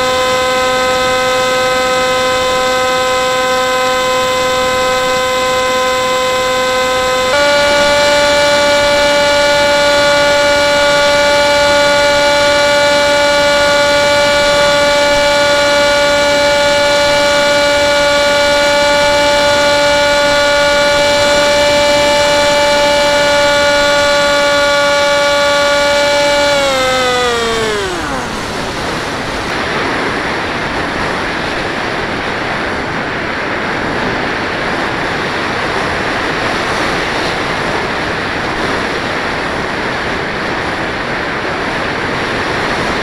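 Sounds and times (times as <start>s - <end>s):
model plane motor whine: 0.0s - 43.0s.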